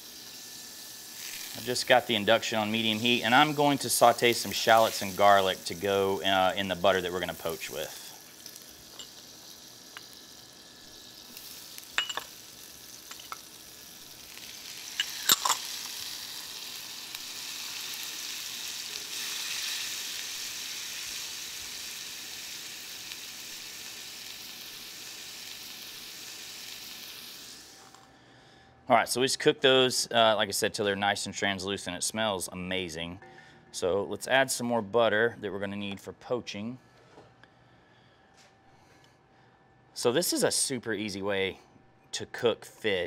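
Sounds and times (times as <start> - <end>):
shallots sizzling in butter: 0.0 - 28.0.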